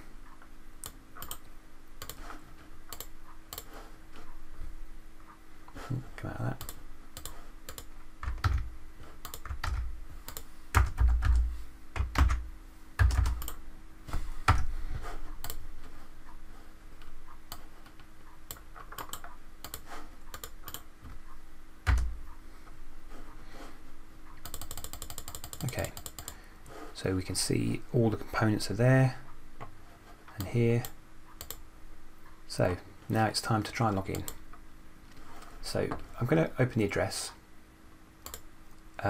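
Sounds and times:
keyboard typing: 0.8 - 2.3, 2.9 - 3.7, 6.6 - 13.6, 17.5 - 20.9, 21.8 - 22.2, 24.4 - 26.4, 30.4 - 31.6, 38.2 - 38.5.

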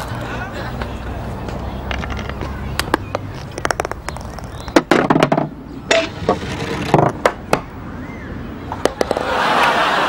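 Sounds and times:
golf ball knocking and rolling: 0.8 - 7.8, 8.7 - 9.4.

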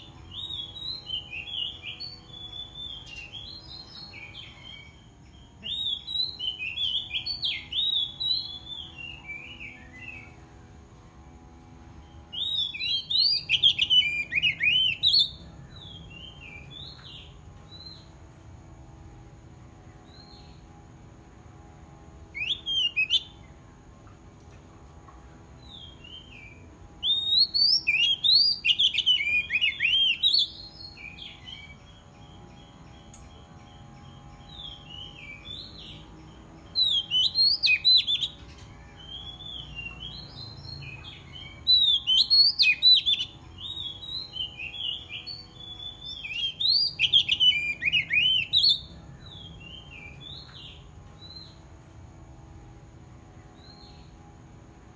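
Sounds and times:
bird singing whistled phrases: 5.6 - 10.3, 12.3 - 18.1, 22.3 - 23.4, 25.7 - 31.9, 36.7 - 51.6.

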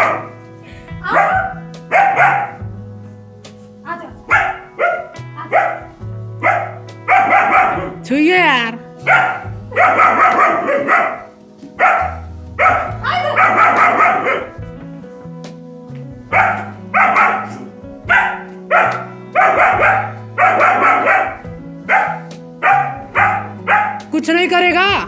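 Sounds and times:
puppy barking: 0.0 - 0.4, 1.0 - 2.7, 4.2 - 8.0, 9.0 - 14.6, 16.3 - 24.1
background music low notes: 0.0 - 25.0.

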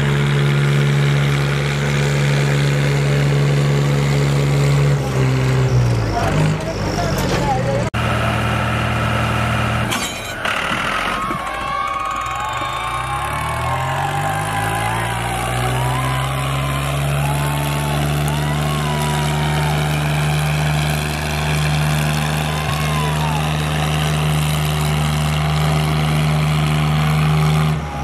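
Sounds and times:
tractor diesel engines running hard: 0.0 - 28.0
faint shouting: 11.0 - 20.3, 22.4 - 23.8.

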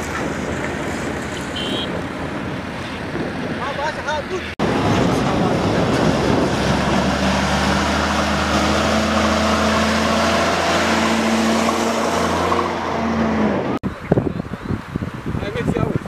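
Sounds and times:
truck engine driving past: 4.6 - 13.8.

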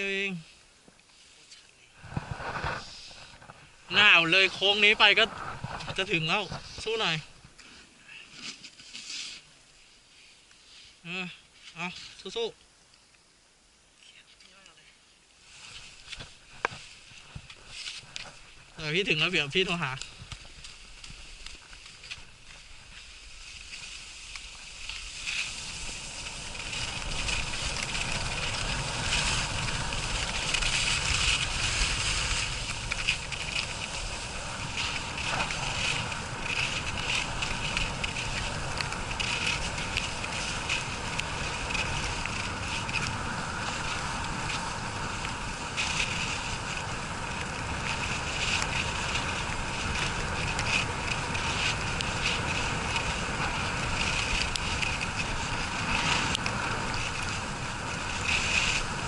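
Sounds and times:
skis hissing over snow: 0.0 - 12.3, 15.3 - 59.0
wind buffeting microphone: 2.0 - 7.5, 22.2 - 59.0.

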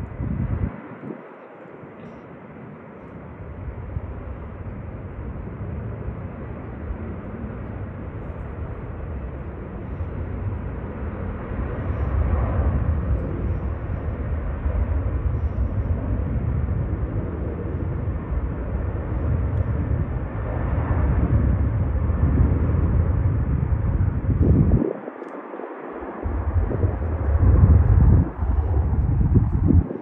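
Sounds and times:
jet engine roar: 0.0 - 30.0.

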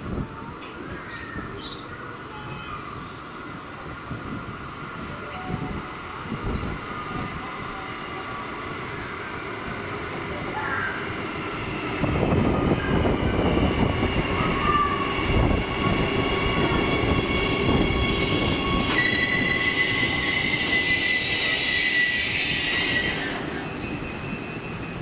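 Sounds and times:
train wheels rumbling on rails: 3.6 - 25.0
train squealing: 5.2 - 25.0.

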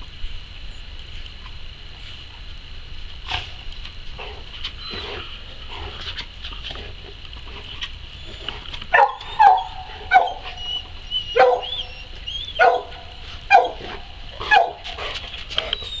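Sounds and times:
dog barking: 8.9 - 10.5, 11.3 - 14.9.

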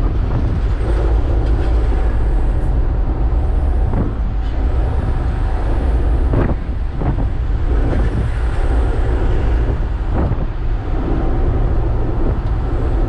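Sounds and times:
truck engine rumble: 0.0 - 13.0.

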